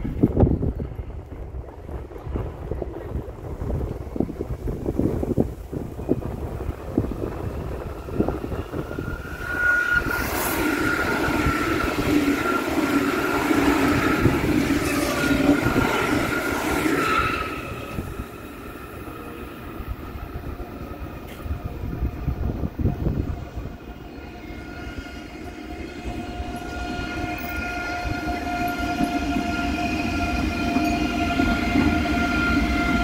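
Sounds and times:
train passing on tracks: 0:00.0 - 0:33.0
wind buffeting microphone: 0:00.0 - 0:33.0
high squeal: 0:08.1 - 0:19.7.

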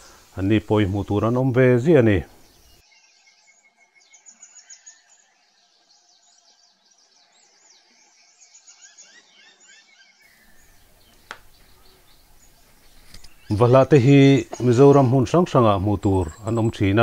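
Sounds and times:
background hiss: 0:00.0 - 0:03.4, 0:10.2 - 0:17.0
small birds chirping: 0:00.0 - 0:17.0.

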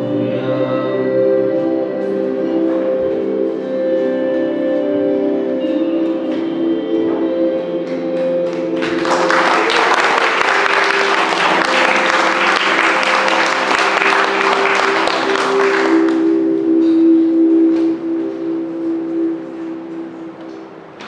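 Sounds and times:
sustained background music chords: 0:00.0 - 0:21.0
audience applauding: 0:08.4 - 0:16.5.

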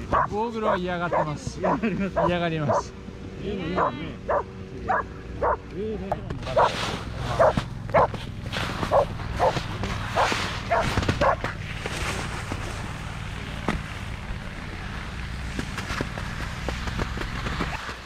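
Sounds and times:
dogs barking: 0:00.0 - 0:02.9, 0:03.8 - 0:05.7, 0:06.5 - 0:08.2, 0:08.8 - 0:11.6.

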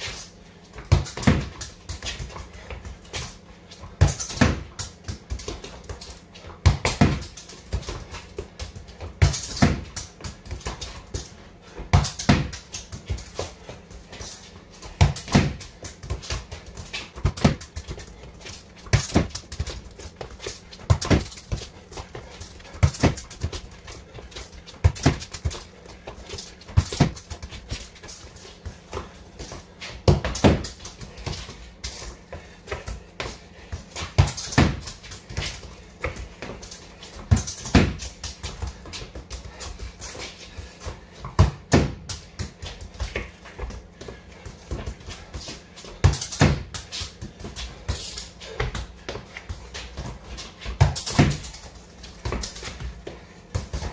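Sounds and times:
footsteps on concrete: 0:00.0 - 0:53.9
football kicked against wall: 0:00.8 - 0:02.3, 0:04.0 - 0:05.6, 0:06.6 - 0:08.0, 0:09.1 - 0:10.9, 0:11.9 - 0:13.2, 0:15.0 - 0:16.5, 0:17.2 - 0:18.0, 0:18.8 - 0:19.8, 0:20.8 - 0:21.6, 0:26.7 - 0:27.3, 0:30.0 - 0:30.8, 0:34.0 - 0:36.2, 0:37.3 - 0:38.4, 0:41.3 - 0:42.2, 0:46.0 - 0:46.8, 0:50.7 - 0:51.6.

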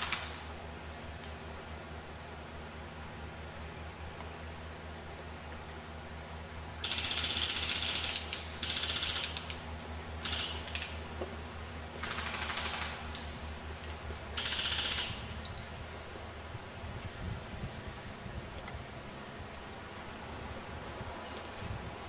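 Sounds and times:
airsoft gun firing bursts: 0:00.0 - 0:00.5, 0:06.8 - 0:09.6, 0:10.2 - 0:11.0, 0:12.0 - 0:13.3, 0:14.4 - 0:15.4.

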